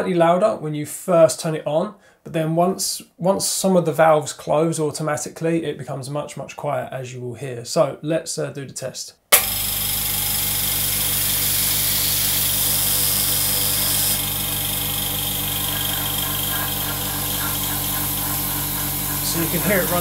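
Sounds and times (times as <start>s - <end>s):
air compressor motor hum: 9.4s - 20.0s
high hiss of air: 15.2s - 20.0s.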